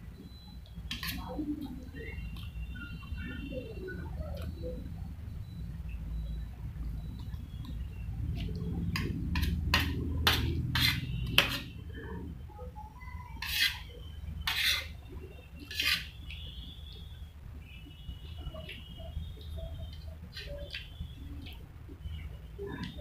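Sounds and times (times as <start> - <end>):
spoon scraping steel plate: 0.9 - 1.2, 9.0 - 11.7, 13.4 - 15.0, 15.6 - 16.2.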